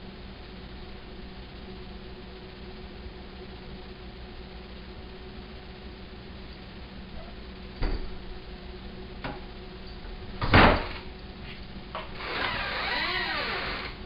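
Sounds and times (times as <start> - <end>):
door scraping open: 12.1 - 14.0.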